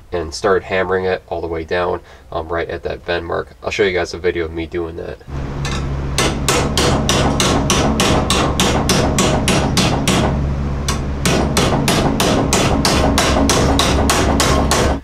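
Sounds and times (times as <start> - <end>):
hammer striking sheet steel: 5.6 - 15.0.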